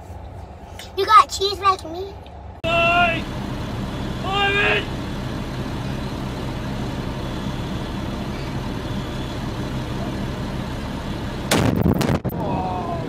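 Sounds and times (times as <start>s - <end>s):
vehicle engine idling: 1.8s - 11.7s.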